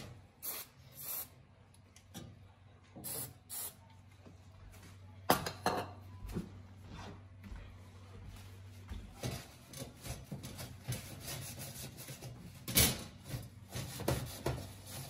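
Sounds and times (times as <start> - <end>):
aerosol spray hissing: 0.4 - 1.3.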